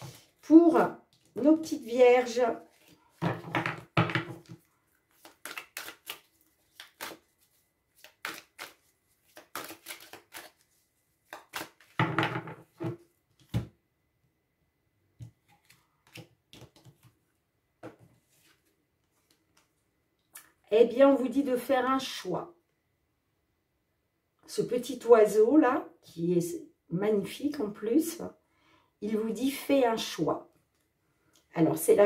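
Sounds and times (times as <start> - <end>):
cards shuffled by hand: 4.3 - 12.0, 15.4 - 17.2.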